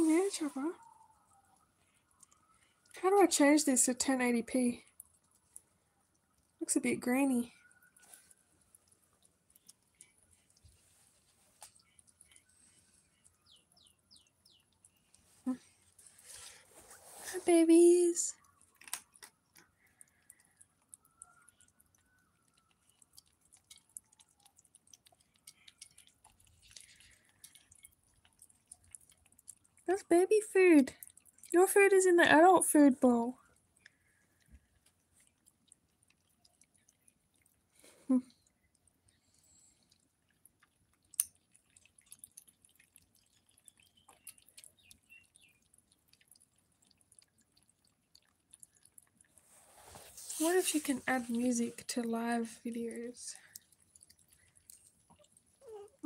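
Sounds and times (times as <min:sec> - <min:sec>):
cats chewing food: 0:00.0 - 0:03.0, 0:04.7 - 0:06.7, 0:07.4 - 0:56.0.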